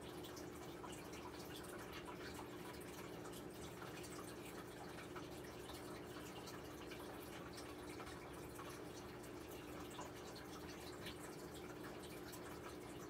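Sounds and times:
water dripping and trickling: 0:00.0 - 0:13.0.

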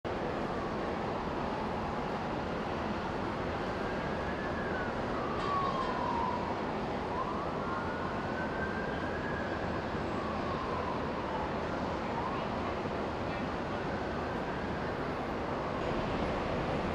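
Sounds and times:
faint siren wailing: 0:00.1 - 0:16.9
street noise: 0:00.1 - 0:16.9.

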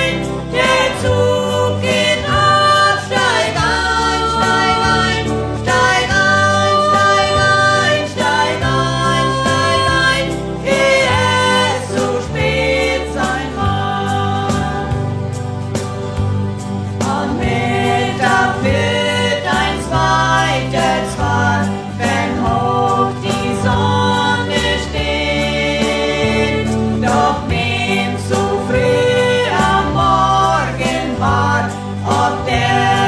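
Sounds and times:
two women singing: 0:00.0 - 0:15.2, 0:17.0 - 0:33.0
instrumental backing with low chords: 0:00.0 - 0:33.0.

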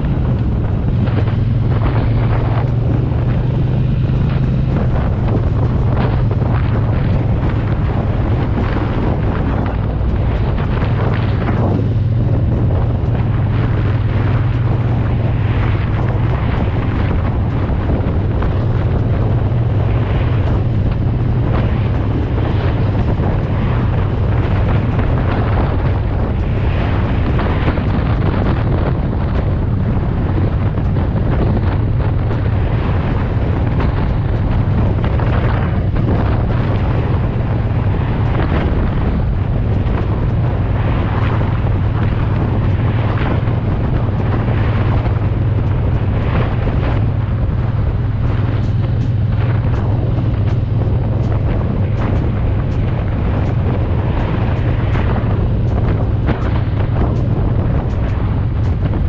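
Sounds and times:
motorcycle engine droning: 0:00.0 - 0:59.0
wind buffeting microphone: 0:00.0 - 0:59.0.

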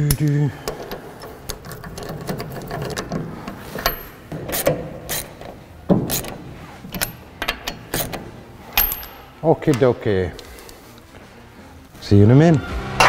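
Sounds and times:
hand ratchet clicking: 0:00.1 - 0:09.2.

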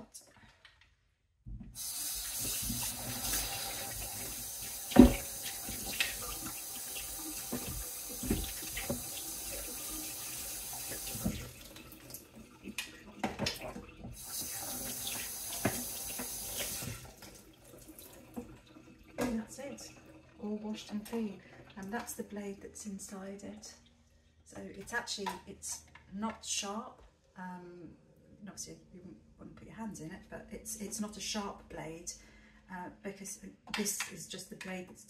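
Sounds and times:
tap water splashing on plastic: 0:02.1 - 0:20.3.

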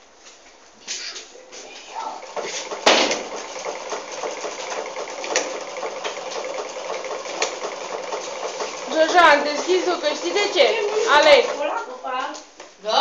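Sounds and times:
sewing machine running: 0:02.0 - 0:11.8.

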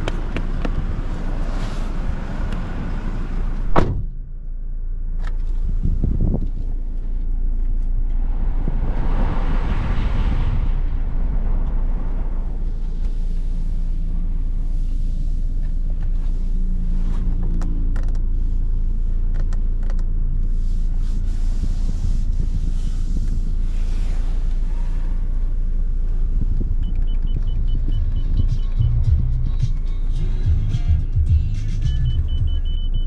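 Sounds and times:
engine and road rumble: 0:00.0 - 0:33.0
rush of noise: 0:05.8 - 0:15.5
light clicks and creaks: 0:17.2 - 0:18.3.

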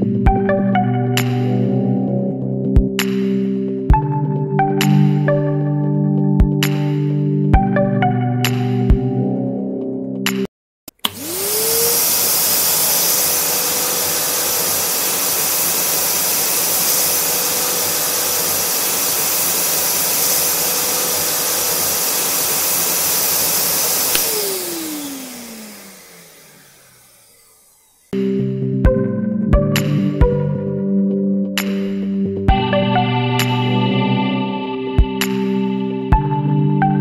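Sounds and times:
vacuum cleaner switch click: 0:10.9 - 0:14.0, 0:23.9 - 0:27.1
vacuum cleaner motor whining: 0:10.9 - 0:28.2.

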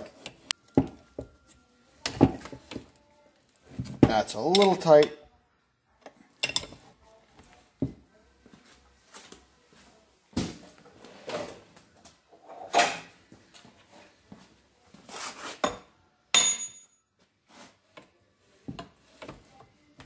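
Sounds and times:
ringing metallic clink: 0:16.3 - 0:17.0.

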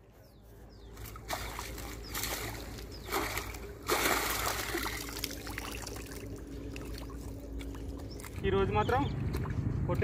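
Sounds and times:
fish thrashing and splashing water: 0:01.0 - 0:08.4.

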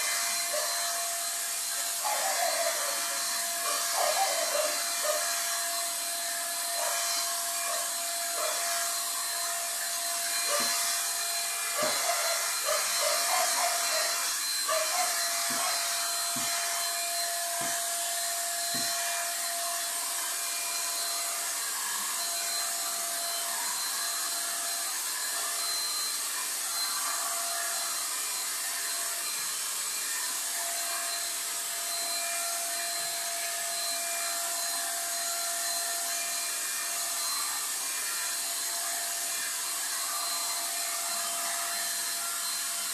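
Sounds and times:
power tool motor running: 0:00.0 - 0:42.9.

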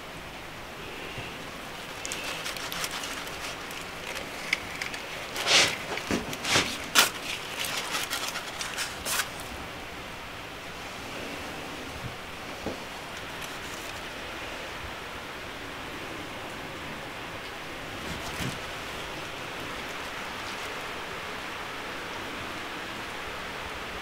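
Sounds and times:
steady hiss: 0:00.0 - 0:24.0
knife scraping pumpkin: 0:01.6 - 0:09.6.

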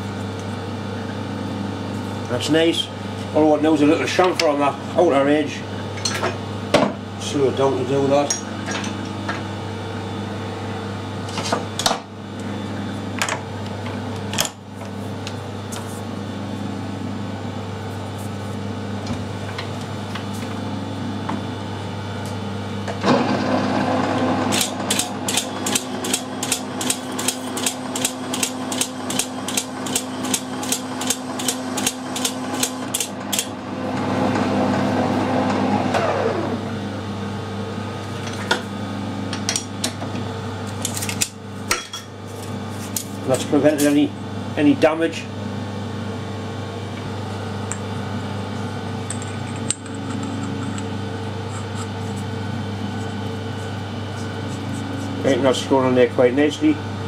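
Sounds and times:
lathe gear hum: 0:22.8 - 0:37.2, 0:46.7 - 0:57.0.

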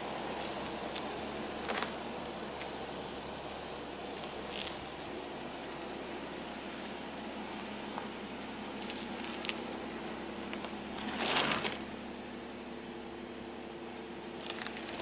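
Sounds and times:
car engine idling: 0:00.0 - 0:15.0
tyres on gravel: 0:00.0 - 0:15.0
car nose scraping ground: 0:10.5 - 0:12.0.

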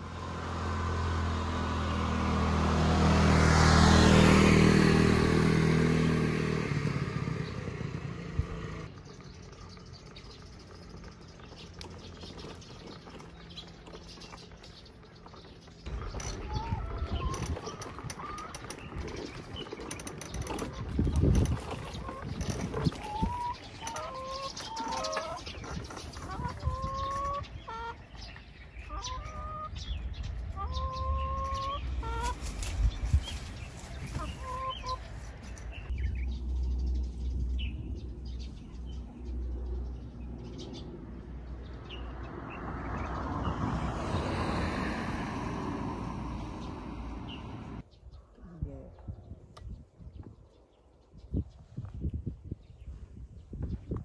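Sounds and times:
bird calling: 0:09.0 - 0:41.1.

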